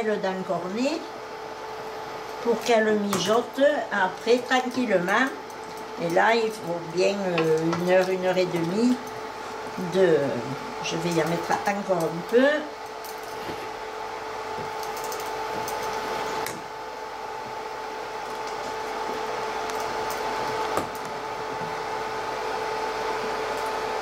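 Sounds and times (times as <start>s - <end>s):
appliance fan whirring: 0.0s - 24.0s.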